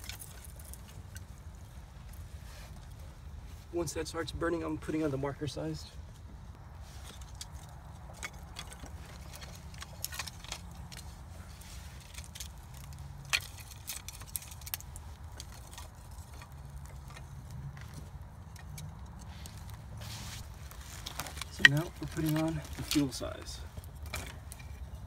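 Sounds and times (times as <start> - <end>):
kindling fire crackling and popping: 0.0 - 3.8, 6.2 - 24.9
sticks clattering: 7.0 - 25.0.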